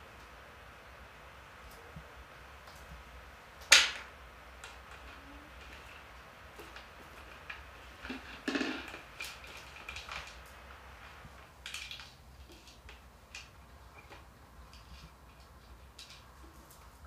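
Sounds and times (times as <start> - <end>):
plastic toys clicking on tile floor: 3.6 - 16.9.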